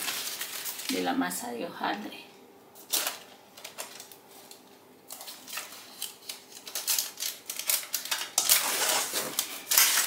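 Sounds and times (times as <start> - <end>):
baking paper crinkling: 0.0 - 1.5, 2.8 - 10.0.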